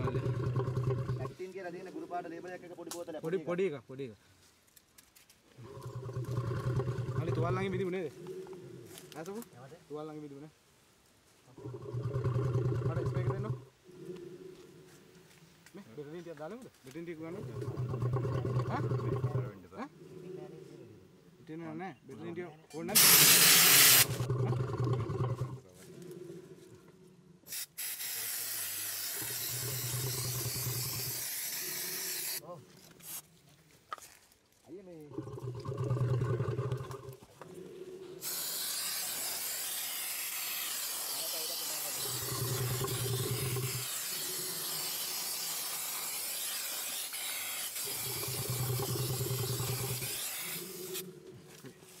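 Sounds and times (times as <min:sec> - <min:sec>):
aerosol spray can hissing: 0:23.0 - 0:24.2, 0:27.5 - 0:32.4, 0:38.2 - 0:51.0.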